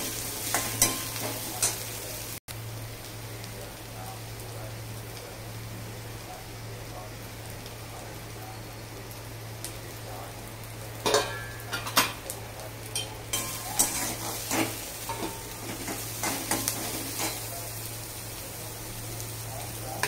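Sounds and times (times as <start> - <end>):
food sizzling in oil: 0.0 - 20.0
metal spatula scraping a pan: 13.4 - 17.5.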